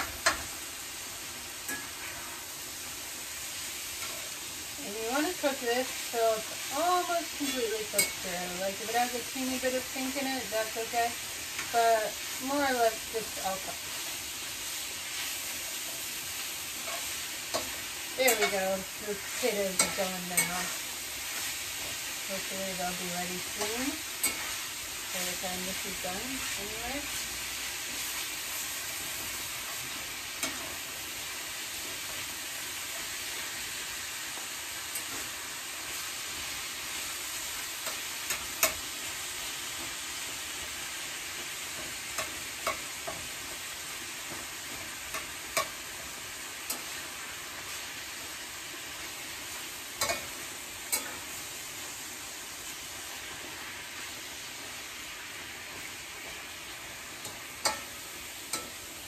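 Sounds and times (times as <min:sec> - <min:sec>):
meat sizzling in a skillet: 0:00.0 - 0:59.0
spatula clicking on pan: 0:16.8 - 0:18.6, 0:19.3 - 0:20.8, 0:30.4 - 0:30.8, 0:37.8 - 0:38.9, 0:41.7 - 0:43.4, 0:44.3 - 0:46.0, 0:46.6 - 0:47.0, 0:50.0 - 0:51.2, 0:57.2 - 0:58.8
spatula scraping: 0:18.3 - 0:20.8.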